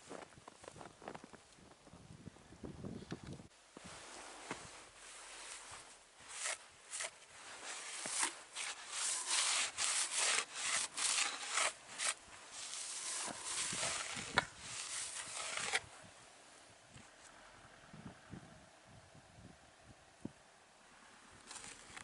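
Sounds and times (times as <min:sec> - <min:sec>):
hand scraping snow off sign: 0:04.0 - 0:16.0.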